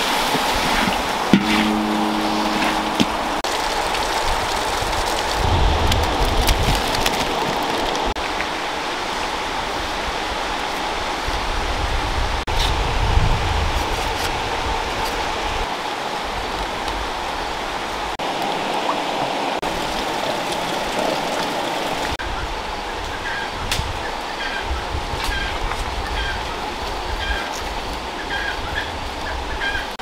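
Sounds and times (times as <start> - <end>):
stream water rushing: 0.0 - 12.2, 15.3 - 22.9.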